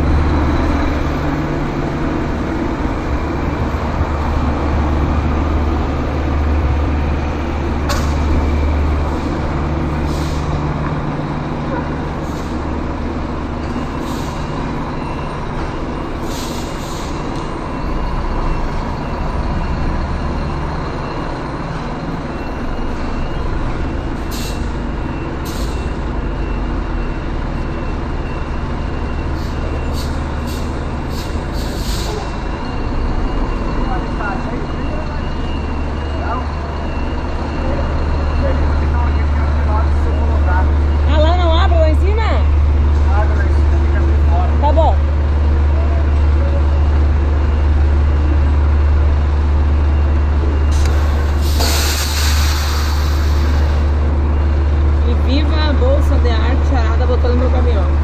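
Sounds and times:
truck diesel engine droning: 0:00.0 - 0:58.0
compressed air hisses: 0:50.9 - 0:53.6.

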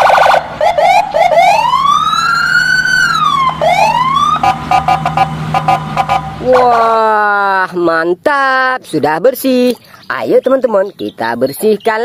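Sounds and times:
police siren: 0:00.0 - 0:07.2.

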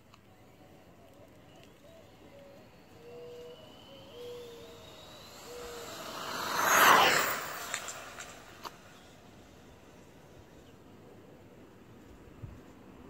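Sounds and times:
electric motor whine: 0:00.5 - 0:10.7
rush of tyres: 0:03.0 - 0:10.8.

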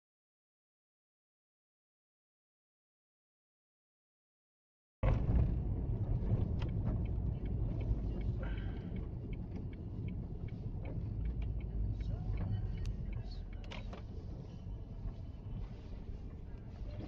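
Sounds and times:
vehicle engine and road rumble: 0:05.0 - 0:17.0.

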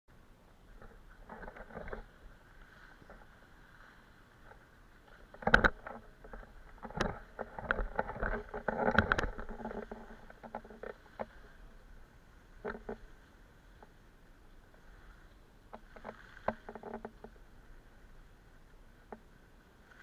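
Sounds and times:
camera knocks and rubbing: 0:05.3 - 0:11.4.

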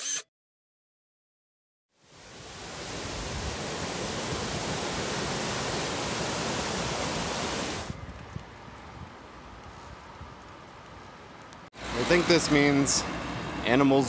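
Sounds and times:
wind: 0:01.9 - 0:14.0
stream rushing over rocks: 0:02.0 - 0:07.9
road noise: 0:02.1 - 0:14.0.

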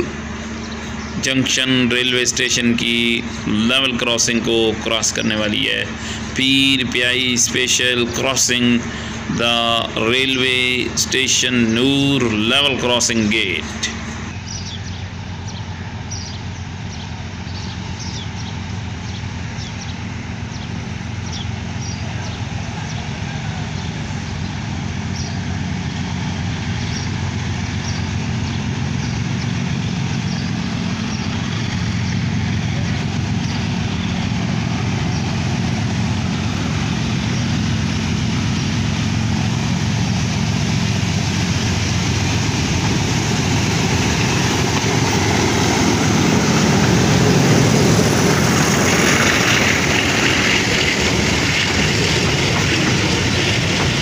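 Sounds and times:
diesel locomotive engines rumbling: 0:00.0 - 0:54.0.

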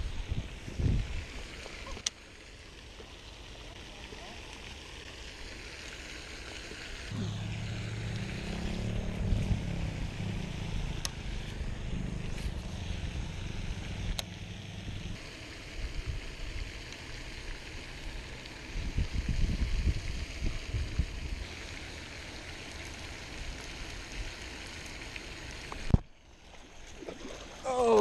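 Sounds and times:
low motor-like hum: 0:06.2 - 0:26.0.

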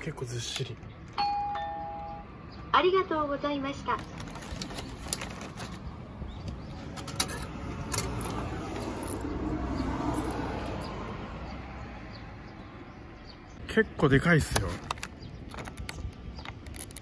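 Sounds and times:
plastic egg carton crackling: 0:04.0 - 0:05.9, 0:14.4 - 0:17.0.

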